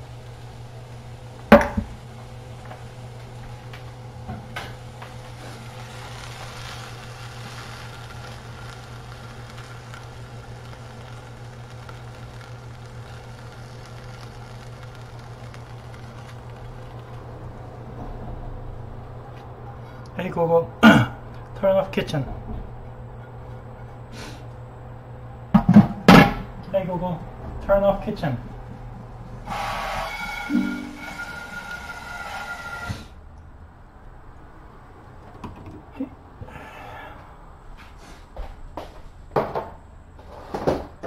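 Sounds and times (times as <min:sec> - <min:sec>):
low hum: 0:26.4 - 0:35.1.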